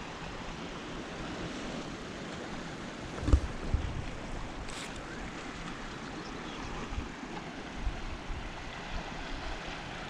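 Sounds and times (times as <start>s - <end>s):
wind blowing over microphone: 3.1s - 5.3s.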